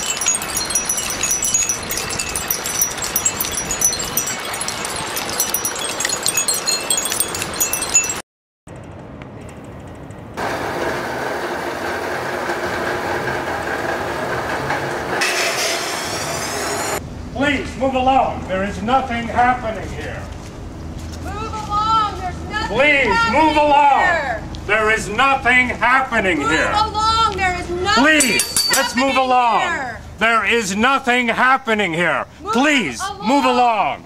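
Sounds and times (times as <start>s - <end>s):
chimes tinkling: 0.0s - 8.2s, 28.1s - 29.6s.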